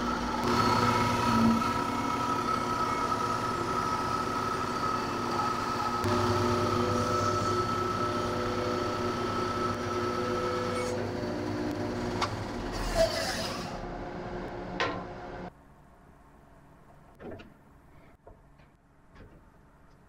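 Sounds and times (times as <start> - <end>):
electric motor humming: 0.0 - 12.8.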